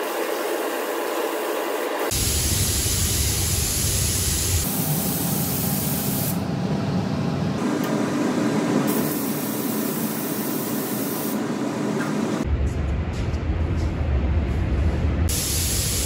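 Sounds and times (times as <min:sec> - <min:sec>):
paint spray gun hissing: 0:01.3 - 0:06.4, 0:08.9 - 0:11.4, 0:15.3 - 0:16.0
steady low rumble: 0:12.4 - 0:15.5.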